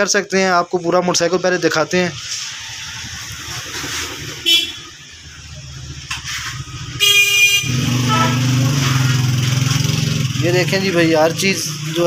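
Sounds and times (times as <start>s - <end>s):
engine running: 2.1s - 12.0s
high horn toots: 4.4s - 5.0s, 6.9s - 9.3s
vehicle horn blaring: 4.4s - 5.0s, 6.9s - 9.3s.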